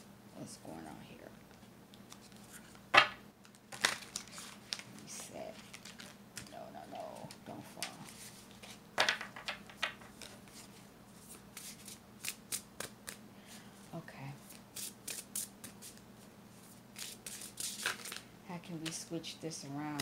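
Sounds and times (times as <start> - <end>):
playing cards shuffled and snapped: 3.0 - 4.8.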